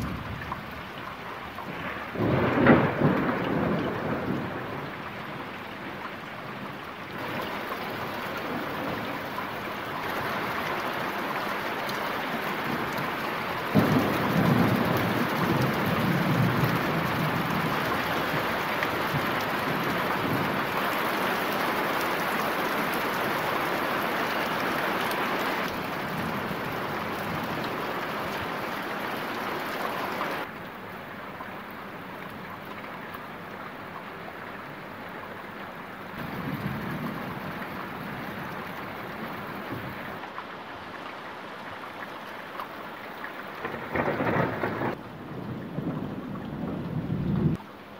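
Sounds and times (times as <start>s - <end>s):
thunder clap rumbling: 0.0s - 0.9s, 1.6s - 5.5s, 12.5s - 21.2s, 36.2s - 40.2s, 43.6s - 47.6s
rain falling: 0.0s - 47.9s.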